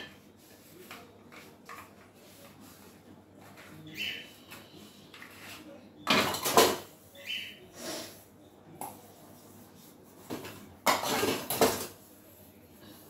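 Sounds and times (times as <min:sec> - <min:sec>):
steel dishes clattering in sink: 0:06.0 - 0:06.9, 0:10.4 - 0:12.0.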